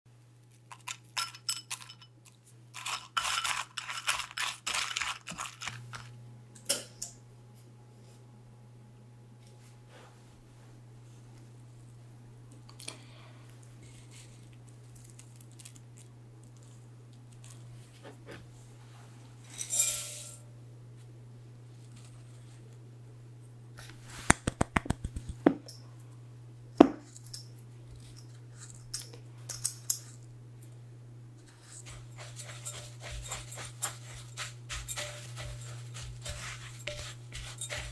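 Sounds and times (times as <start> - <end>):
granola clinking into glass bowl: 0.7 - 2.1
container knocking on bowl: 26.8 - 27.0
flour pouring with soft rustle: 31.5 - 37.9.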